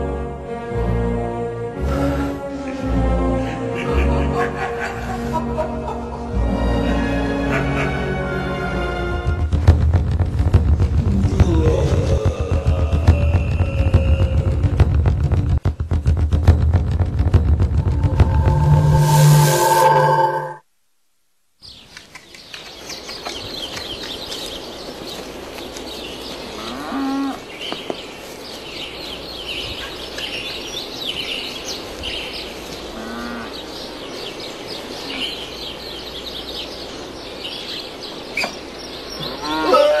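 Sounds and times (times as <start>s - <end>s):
small birds chirping: 21.6s - 39.6s.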